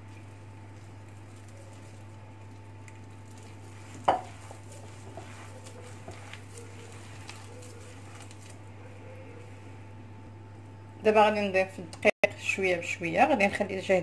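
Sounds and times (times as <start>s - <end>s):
dough scraping against glass: 0.0s - 8.6s
hand kneading dough: 0.0s - 9.7s.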